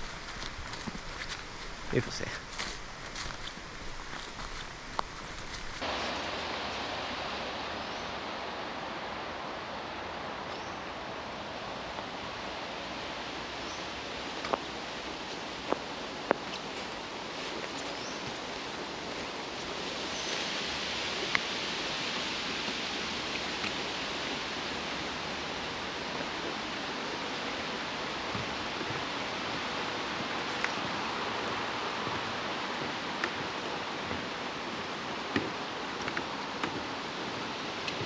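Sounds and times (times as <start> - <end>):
outdoor rushing noise: 5.4 - 15.7.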